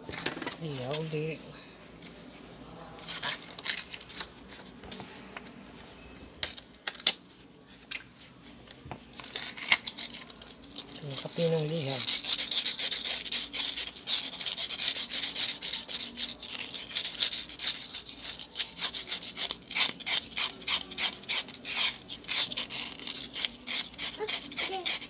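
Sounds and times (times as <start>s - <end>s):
sandpaper scratching on metal: 11.0s - 25.0s.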